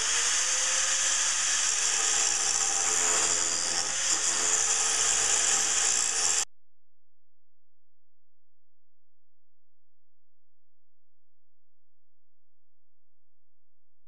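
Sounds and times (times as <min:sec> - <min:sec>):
angle grinder grinding steel: 0:00.0 - 0:06.4.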